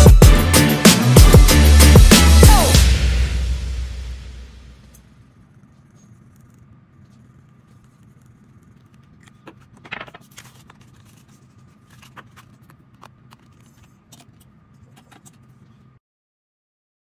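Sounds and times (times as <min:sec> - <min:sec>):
paper rustling on tabletop: 0:05.6 - 0:15.9.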